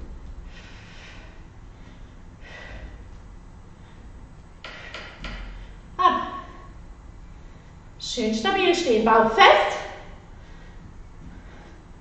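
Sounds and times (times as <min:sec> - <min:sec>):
woman breathing hard: 0:00.4 - 0:05.9, 0:10.1 - 0:12.0.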